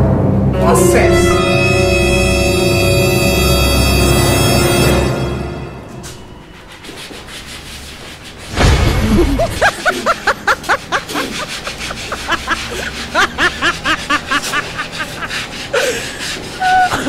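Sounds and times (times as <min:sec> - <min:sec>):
chalkboard being rubbed: 0:06.0 - 0:17.0.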